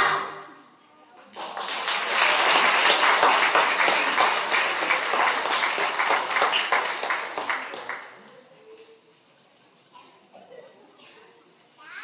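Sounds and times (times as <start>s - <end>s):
audience applauding: 1.4s - 8.2s.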